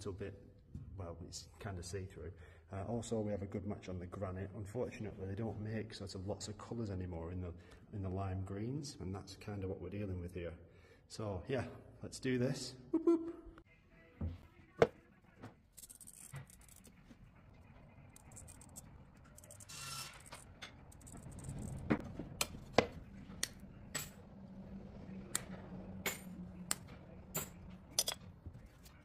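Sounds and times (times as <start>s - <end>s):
glass scraping: 18.1s - 22.0s
glass pieces clinking and tapping: 28.0s - 28.2s.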